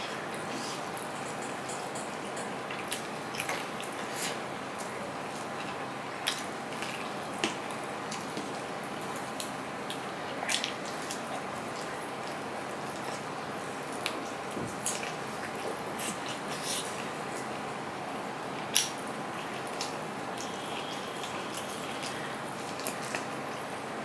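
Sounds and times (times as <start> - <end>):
wet chewing and mouth smacks: 0.3 - 8.6.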